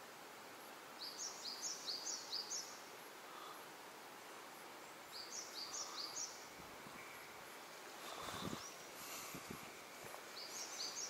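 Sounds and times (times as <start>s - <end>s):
steady hiss: 0.0s - 11.0s
soft low rustle: 6.5s - 11.0s.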